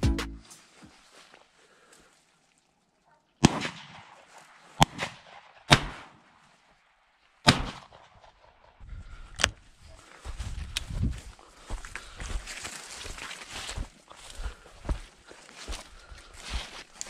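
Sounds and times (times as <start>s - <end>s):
shotgun shots echoing: 3.4s - 6.3s, 7.4s - 8.8s.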